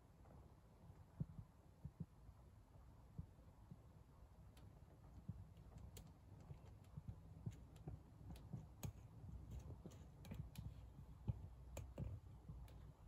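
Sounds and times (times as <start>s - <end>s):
faint irregular clicks: 4.5s - 13.0s.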